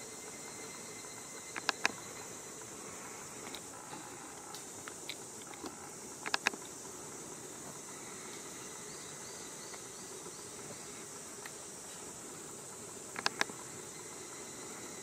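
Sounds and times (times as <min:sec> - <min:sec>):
insects droning: 0:00.0 - 0:15.0
sharp clicks: 0:01.6 - 0:02.0, 0:04.4 - 0:06.8, 0:13.1 - 0:13.6.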